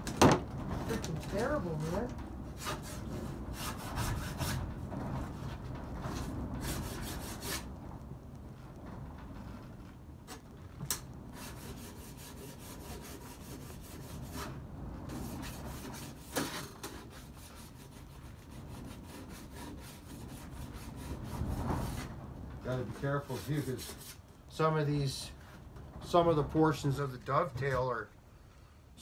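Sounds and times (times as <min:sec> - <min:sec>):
file scraping metal: 0:02.6 - 0:04.6, 0:11.4 - 0:14.5, 0:15.2 - 0:22.1, 0:22.8 - 0:24.2.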